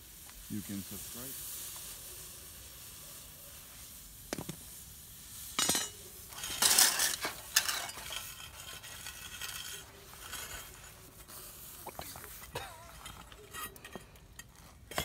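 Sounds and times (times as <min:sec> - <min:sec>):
steel scraping on firebricks: 0:05.4 - 0:15.0
metal tools clinking: 0:05.6 - 0:10.9, 0:12.5 - 0:15.0.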